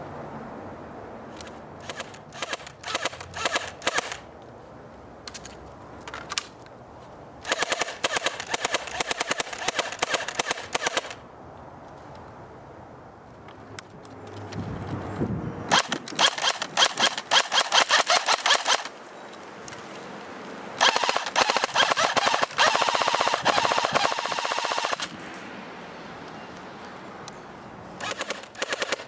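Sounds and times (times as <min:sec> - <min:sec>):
airsoft gun full-auto bursts: 0:01.8 - 0:04.2, 0:07.4 - 0:11.2, 0:15.7 - 0:18.9, 0:20.8 - 0:25.1, 0:28.0 - 0:29.0.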